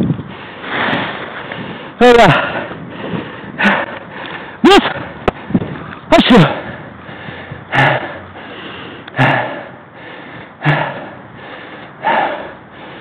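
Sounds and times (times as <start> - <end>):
man breathing hard: 1.4 - 13.0.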